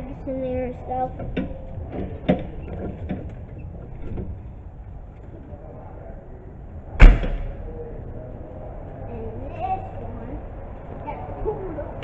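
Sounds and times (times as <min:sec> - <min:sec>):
metal door banging shut: 0:07.0 - 0:07.6.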